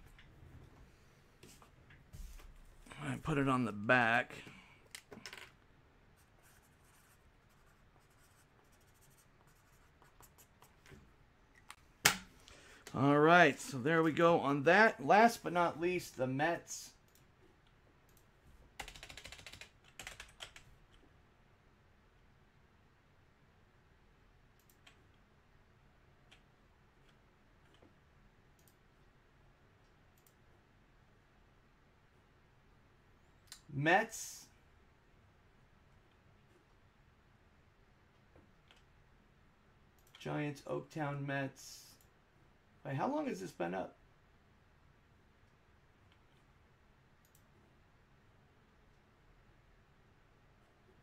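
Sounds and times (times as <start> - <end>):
marker scratching while writing: 6.2 - 10.8
computer keyboard clicks: 18.8 - 21.0.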